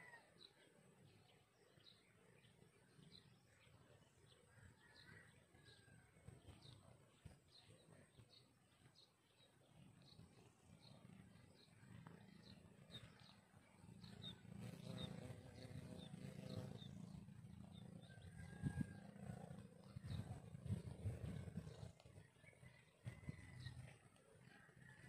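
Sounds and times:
wind buffeting microphone: 18.2s - 22.3s.

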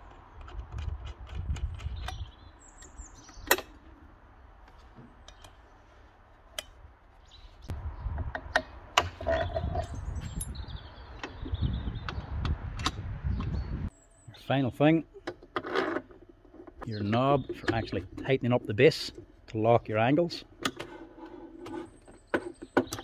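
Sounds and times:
sharp metal clicks and knocks: 0.0s - 3.8s.

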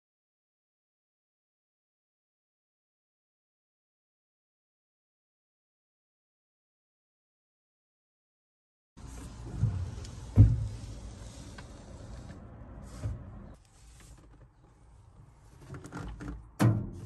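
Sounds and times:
dull thumps: 9.3s - 11.0s.

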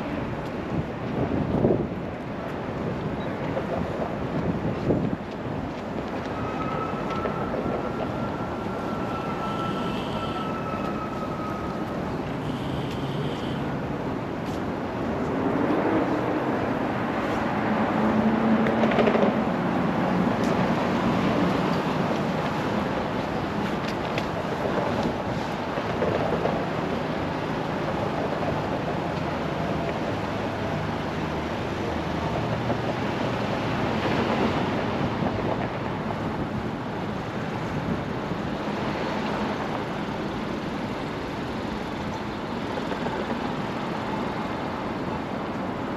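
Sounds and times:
cars passing on street: 0.0s - 45.9s
cars driving past: 6.2s - 23.8s.

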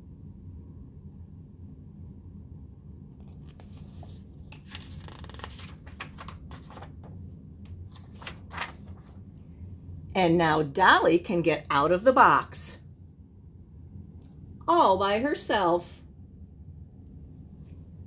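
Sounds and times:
low steady hum: 0.0s - 18.0s
paper pages rustling and crackling: 3.2s - 9.3s.

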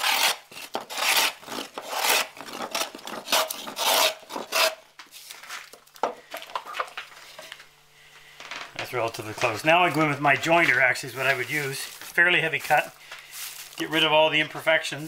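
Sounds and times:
plane shaving wood: 0.0s - 4.8s.

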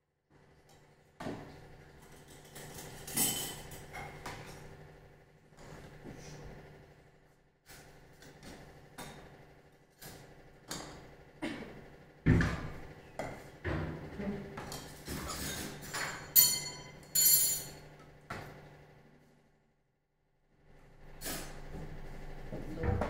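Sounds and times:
dishes knocking and clinking: 13.2s - 17.8s
crockery ringing clinks: 15.9s - 17.8s.

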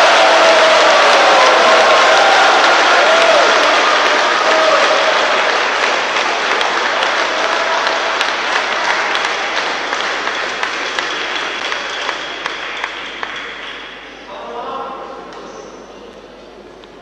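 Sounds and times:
crowd applause: 0.0s - 14.2s
single claps: 1.0s - 14.0s.

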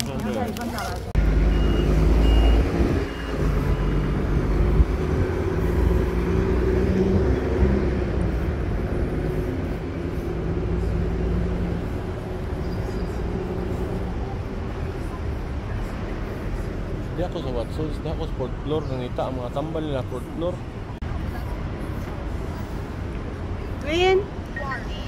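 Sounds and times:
traffic engines rumbling: 0.0s - 25.0s.

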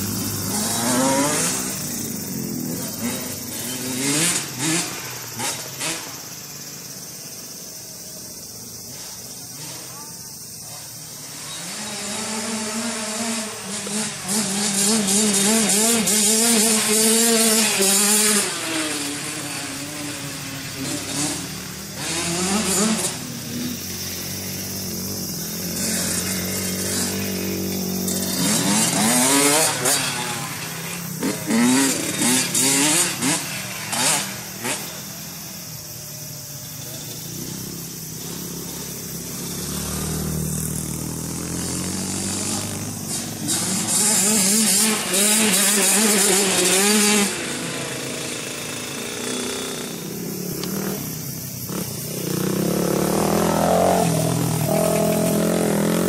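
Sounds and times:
dirt bike engine revving: 0.0s - 7.8s, 10.7s - 56.0s.

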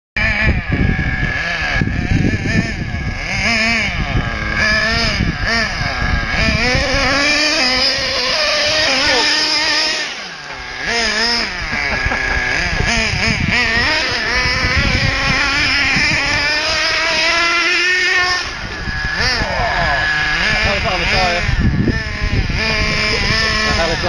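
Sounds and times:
radio-controlled car engine revving: 0.2s - 24.0s.

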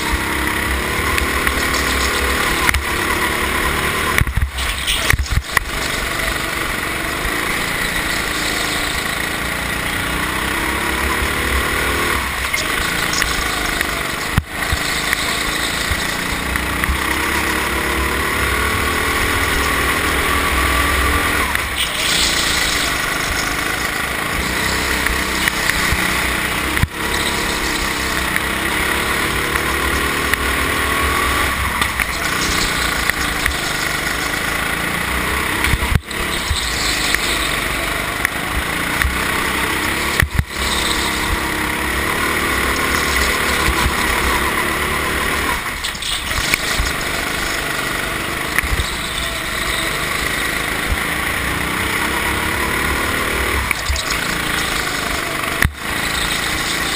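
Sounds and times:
go-kart engine revving: 0.0s - 56.9s.

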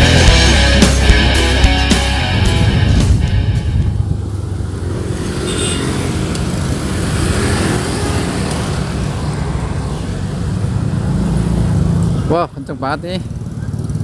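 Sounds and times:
motorcycle engine: 0.0s - 14.0s
other vehicles passing: 0.0s - 14.0s
wind rush on camera: 2.4s - 5.4s.

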